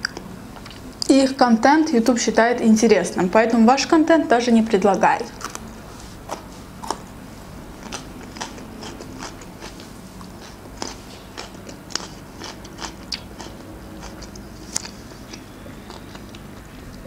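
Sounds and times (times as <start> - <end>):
chewing crunchy cucumber: 5.3 - 17.0.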